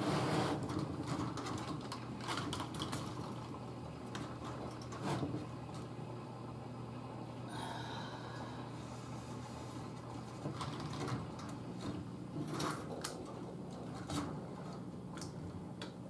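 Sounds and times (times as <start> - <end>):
steady low hum: 0.0 - 16.0.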